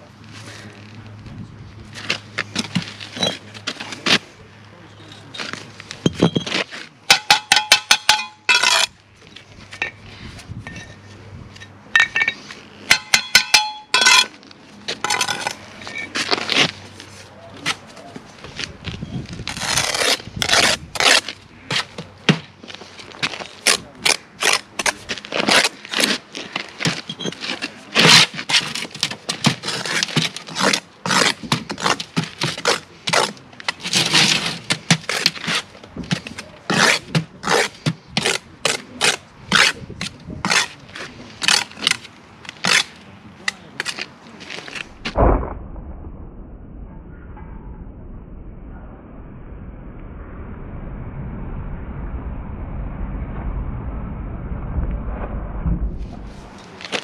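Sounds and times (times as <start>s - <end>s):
hand tools scraping on brick: 5.3s - 8.9s, 9.6s - 17.9s, 19.4s - 45.0s.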